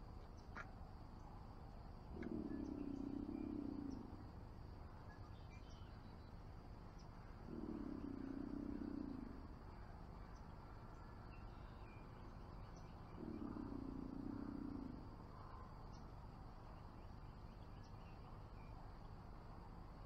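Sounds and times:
insects droning: 0.0s - 20.0s
birds chirping: 2.2s - 4.2s, 7.0s - 9.4s.

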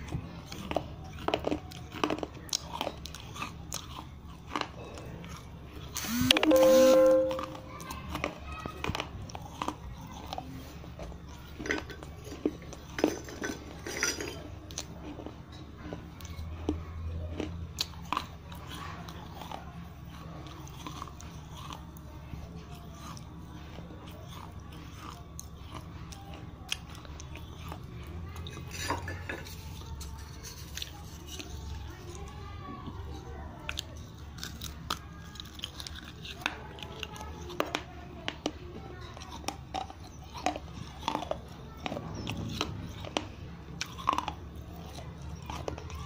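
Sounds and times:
crunching clay pieces in mouth: 0.0s - 6.0s, 33.7s - 46.0s.

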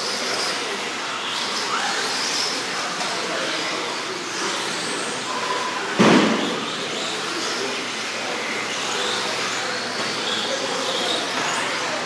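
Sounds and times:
electric motors whining: 0.0s - 12.0s
loud thump: 6.0s - 6.7s.

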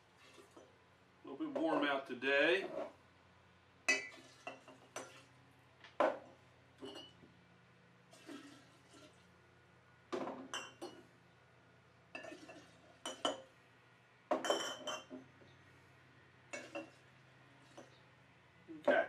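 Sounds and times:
glass jars clinking: 3.9s - 5.2s, 6.8s - 7.2s, 10.5s - 11.1s, 12.2s - 13.5s, 14.3s - 15.2s.

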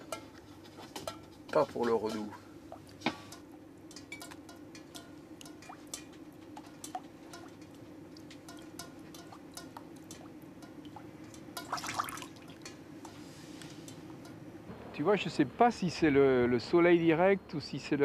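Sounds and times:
water drips plinking in saucepan: 1.9s - 13.2s.

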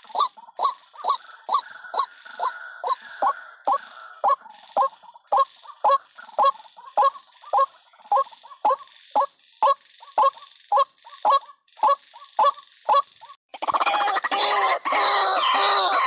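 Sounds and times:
waterhen call: 0.0s - 16.0s.

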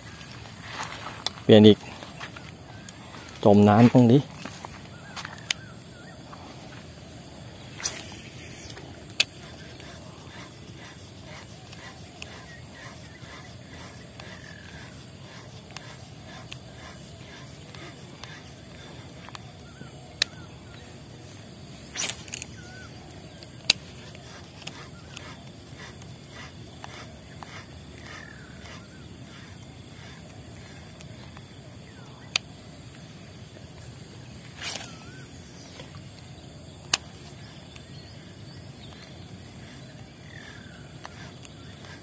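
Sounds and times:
faint chirping calls: 0.0s - 42.0s
high insect-like buzz: 0.0s - 42.0s
fishing reel clicking: 7.4s - 21.0s, 21.9s - 42.0s
fishing rod cast swish: 7.7s - 8.7s, 21.9s - 22.8s.

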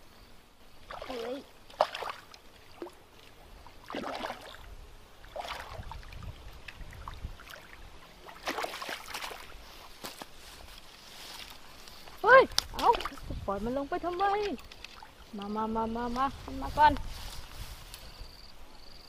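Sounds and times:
fish splashing at water surface: 3.8s - 9.5s.

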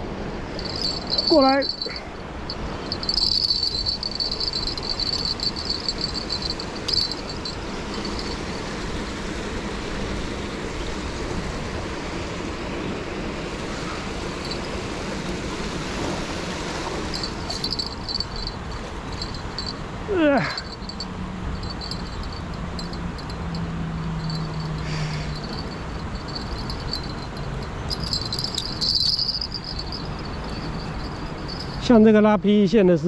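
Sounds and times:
steady rushing noise: 0.0s - 9.5s, 11.4s - 19.8s, 20.6s - 31.9s
insect chirring: 0.5s - 8.7s, 14.4s - 14.7s, 17.1s - 19.8s, 20.4s - 31.9s.

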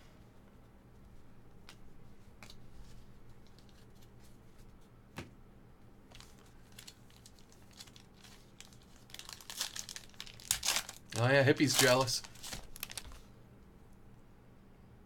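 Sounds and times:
low steady hum: 0.0s - 15.0s
trading cards rustling and clicking: 6.1s - 13.3s.

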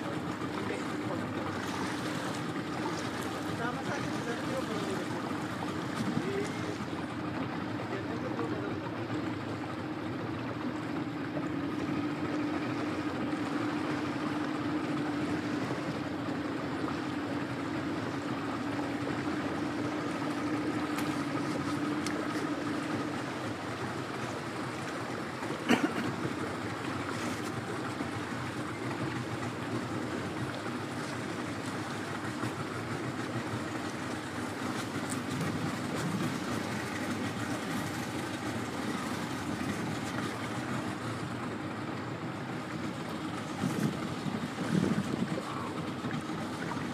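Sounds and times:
boat motor running: 0.0s - 46.9s
water noise: 0.0s - 46.9s.

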